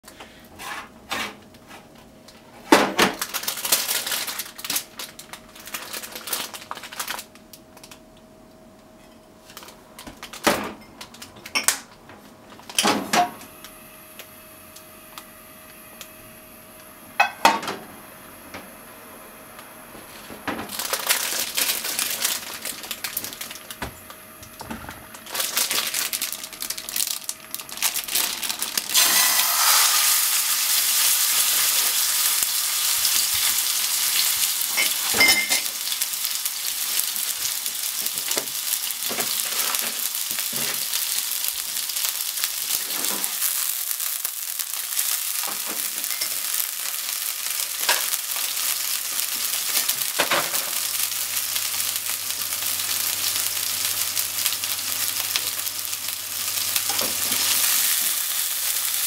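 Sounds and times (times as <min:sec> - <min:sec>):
plastic packaging crinkling: 0:03.0 - 0:08.0, 0:09.5 - 0:11.6, 0:20.1 - 0:59.0
chicken sizzling in a pan: 0:20.1 - 0:23.7, 0:25.1 - 0:59.0.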